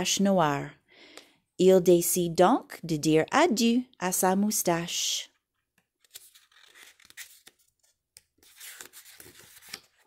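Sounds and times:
book pages rustling and turning: 0:05.6 - 0:10.0.

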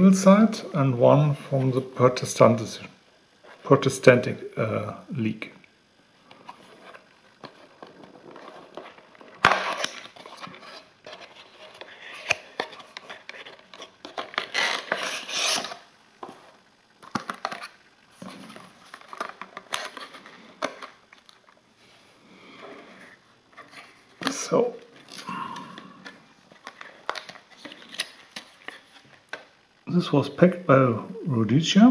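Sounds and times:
cardboard and plastic rustling: 0:06.3 - 0:21.6, 0:22.6 - 0:29.6.

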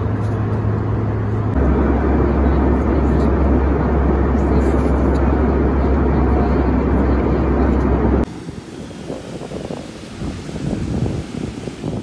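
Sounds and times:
airliner cabin drone: 0:00.0 - 0:12.0
wind on microphone: 0:01.5 - 0:12.0.

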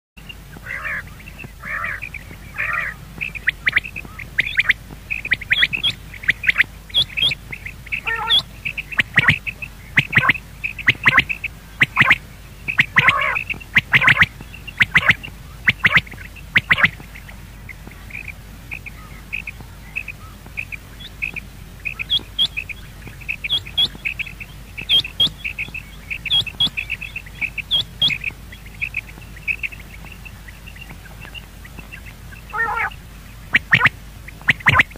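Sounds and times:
game bird squawking calls: 0:00.6 - 0:17.0, 0:32.5 - 0:34.9.

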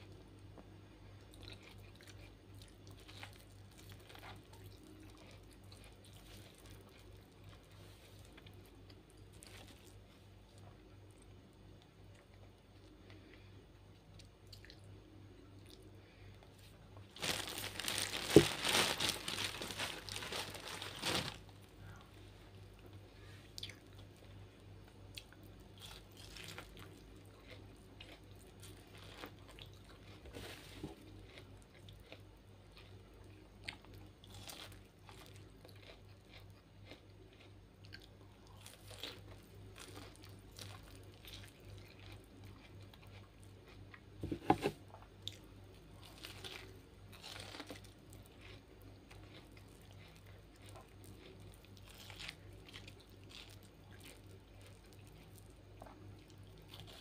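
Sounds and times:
chewing corn on the cob: 0:01.2 - 0:13.4, 0:23.6 - 0:57.0
loud rustling crinkling: 0:17.1 - 0:21.6.

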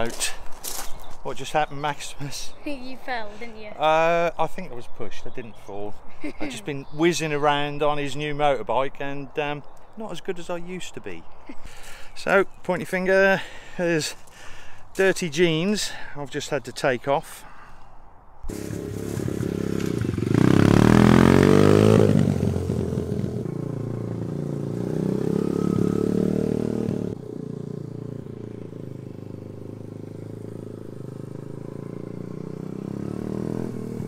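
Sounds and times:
small motorbike engine revving: 0:18.5 - 0:34.0.

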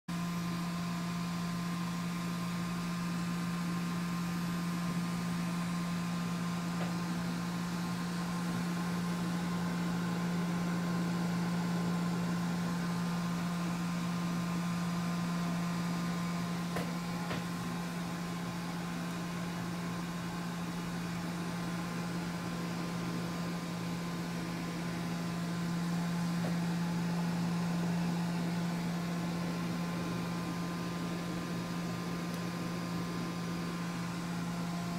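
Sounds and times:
mechanical hum with low drone: 0:00.1 - 0:34.9.

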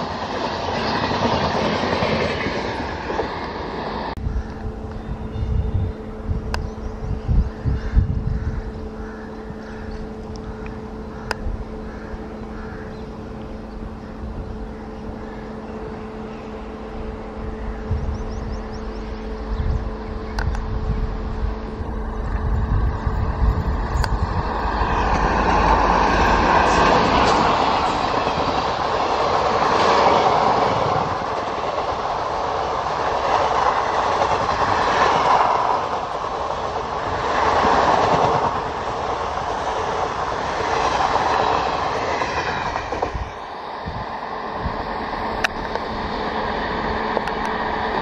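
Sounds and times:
train wheels clattering on rail: 0:00.0 - 0:03.6, 0:23.2 - 0:48.0
locomotive deep rumble: 0:04.1 - 0:29.6.

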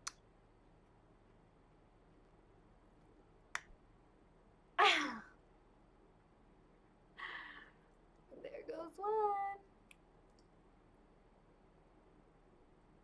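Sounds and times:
woman's sighing vocal sound: 0:07.2 - 0:07.8.

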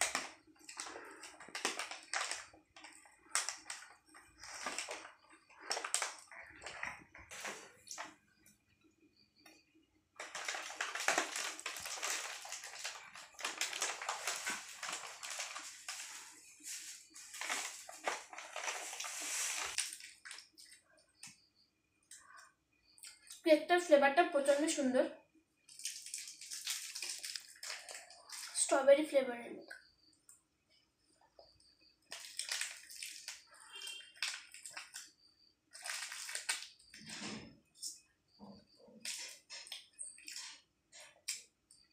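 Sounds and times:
plastic packaging crinkling: 0:00.0 - 0:08.2, 0:10.2 - 0:20.8, 0:25.7 - 0:28.7, 0:32.1 - 0:37.1, 0:39.0 - 0:41.4.

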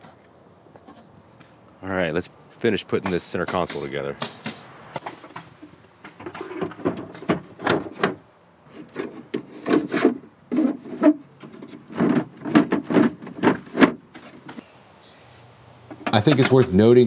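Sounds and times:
hard plastic parts knocking and scraping: 0:03.0 - 0:14.6, 0:15.9 - 0:16.8.

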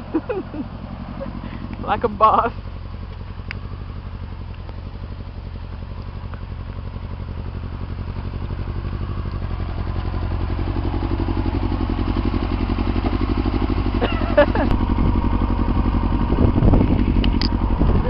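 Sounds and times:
motorcycle engine pulsing: 0:00.0 - 0:18.0.

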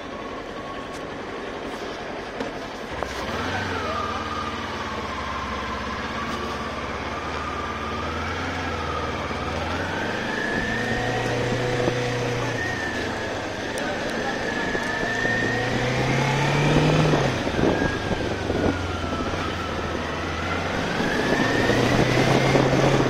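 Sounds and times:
motorcycle engine at low revs: 0:00.0 - 0:23.0.

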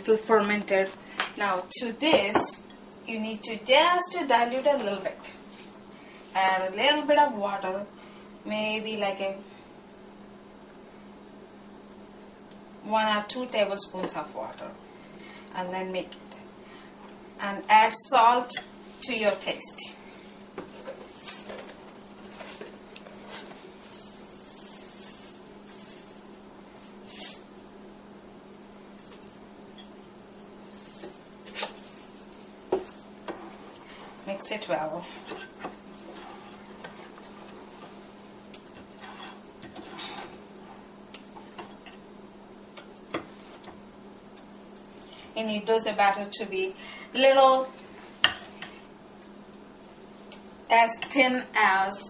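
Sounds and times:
steady low hum: 0:00.0 - 0:52.0
salt pouring hiss: 0:27.0 - 0:27.4
batter stirring and pouring: 0:35.1 - 0:40.4.

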